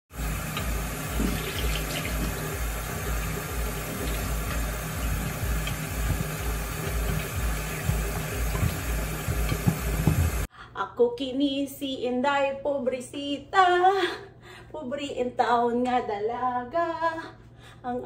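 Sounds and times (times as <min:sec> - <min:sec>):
faucet running into metal sink: 0:00.2 - 0:10.5.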